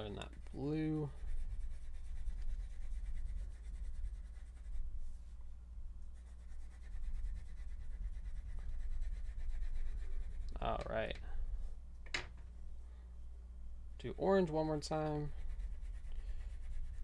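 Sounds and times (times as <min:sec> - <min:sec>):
crayon rubbing on paper: 0:00.0 - 0:05.3, 0:06.2 - 0:10.8, 0:15.1 - 0:17.0
low steady hum: 0:00.0 - 0:17.0.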